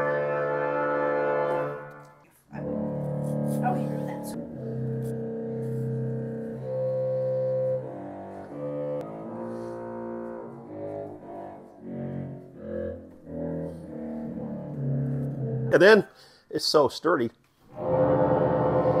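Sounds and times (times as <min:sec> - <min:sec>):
low pipe organ pedal notes: 0:00.0 - 0:15.8, 0:17.8 - 0:19.0.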